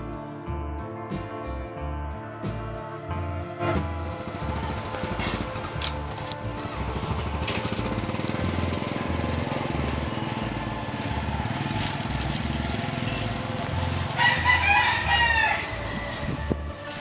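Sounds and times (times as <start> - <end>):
rooster crowing: 14.1 - 16.4.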